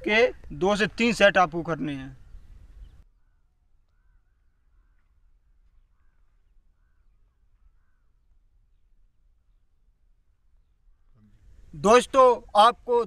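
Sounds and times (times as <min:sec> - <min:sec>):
faint bird calls: 0:02.1 - 0:08.9.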